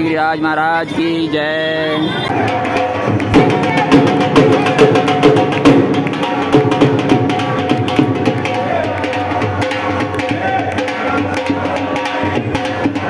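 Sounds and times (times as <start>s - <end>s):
hand drum beating: 2.3s - 13.0s
crowd clapping: 4.8s - 6.5s, 7.1s - 12.0s.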